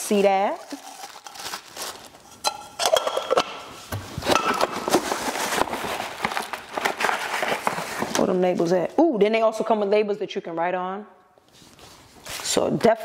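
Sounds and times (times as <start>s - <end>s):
plastic packaging crinkling: 0.0s - 3.0s, 4.6s - 8.4s.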